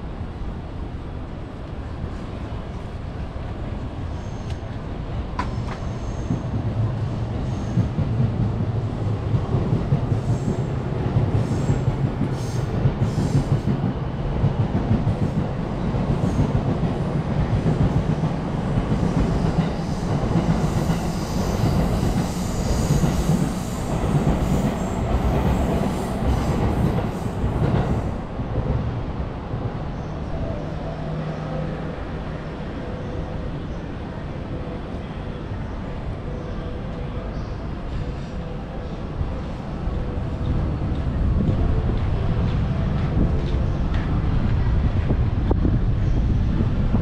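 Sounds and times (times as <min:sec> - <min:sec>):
train wheels rumbling on track: 0:00.0 - 0:47.0.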